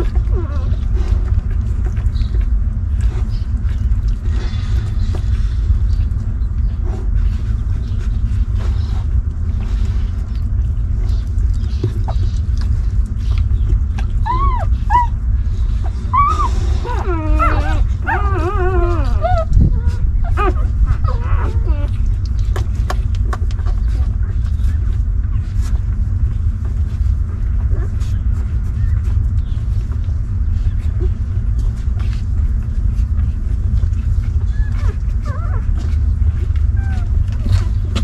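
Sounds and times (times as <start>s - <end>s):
low rumble: 0.0s - 38.0s
puppies whimpering and squealing: 0.0s - 38.0s.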